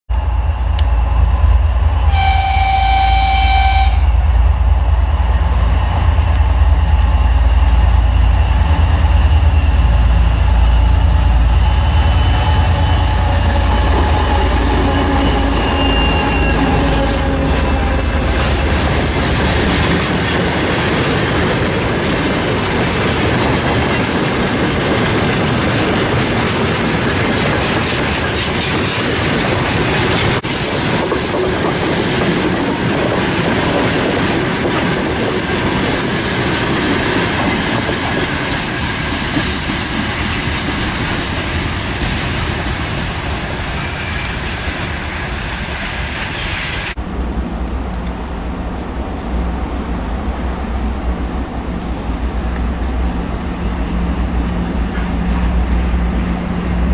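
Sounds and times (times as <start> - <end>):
freight train wheels clattering: 4.3 - 46.3
wheel squeal: 10.7 - 19.6.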